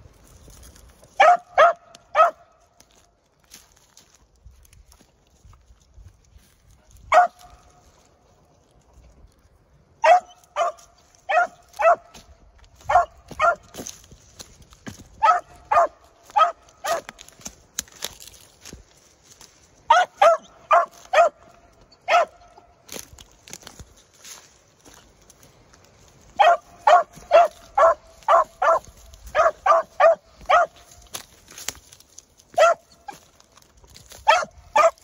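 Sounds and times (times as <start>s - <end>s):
dog barking: 1.2s - 2.6s, 7.1s - 7.7s, 10.0s - 12.2s, 12.9s - 13.8s, 15.2s - 17.2s, 19.9s - 22.7s, 26.4s - 31.0s, 32.5s - 33.2s, 34.2s - 35.0s.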